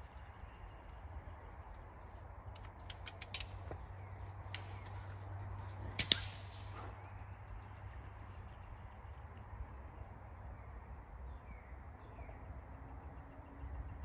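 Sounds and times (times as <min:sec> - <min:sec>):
air rifle shot cracks: 0:05.9 - 0:06.9.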